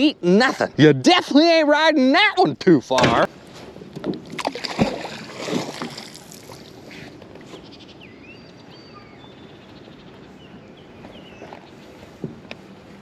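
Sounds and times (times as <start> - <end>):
water lapping: 3.3 - 7.8, 10.2 - 13.0
magnet splashing into water: 4.1 - 6.6
faint bird chirps: 7.4 - 12.0.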